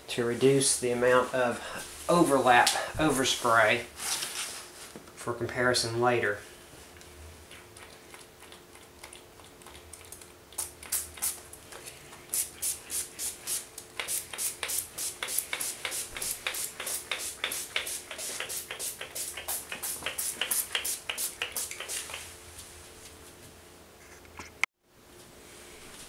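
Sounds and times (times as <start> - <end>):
aerosol spray hissing: 12.3 - 22.2.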